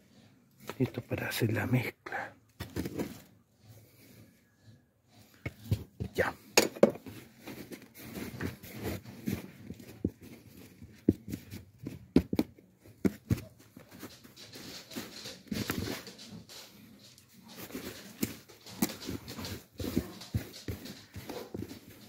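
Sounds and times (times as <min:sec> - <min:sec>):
soil rustling and scraping: 0:14.1 - 0:22.0.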